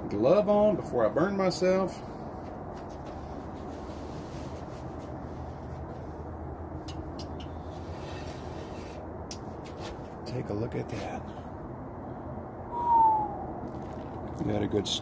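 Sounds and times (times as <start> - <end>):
steady low rumble: 9.0 - 15.0.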